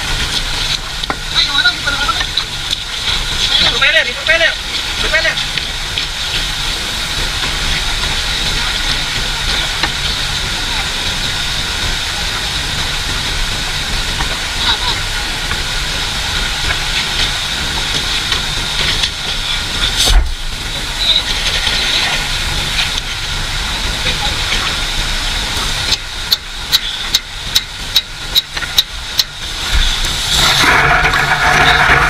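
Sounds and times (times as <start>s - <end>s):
hiss: 0.0s - 32.0s
tractor diesel engine running: 0.0s - 32.0s
loud rushing noise: 15.2s - 21.0s, 29.4s - 32.0s.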